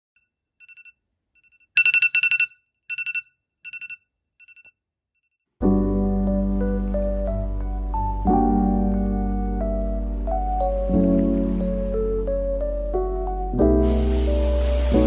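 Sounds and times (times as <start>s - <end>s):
phone alarm beeping: 1.5s - 4.7s
soft keyboard music: 5.6s - 15.0s.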